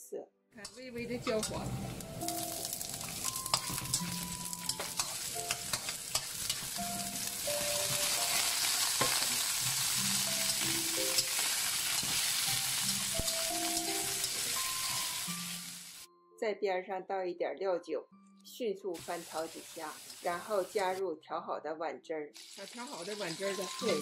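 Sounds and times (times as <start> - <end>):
metal spatula scraping a pan: 0.6 - 15.5
hot oil sizzling in a wok: 0.6 - 16.1, 19.0 - 21.0, 22.4 - 24.0.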